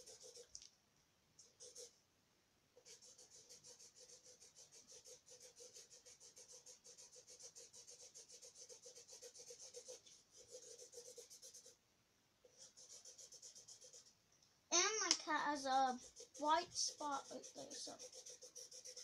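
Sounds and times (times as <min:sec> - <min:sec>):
marker scribbling on paper: 0:00.0 - 0:00.6, 0:01.4 - 0:01.9, 0:02.8 - 0:11.8, 0:12.4 - 0:14.2, 0:14.8 - 0:19.0.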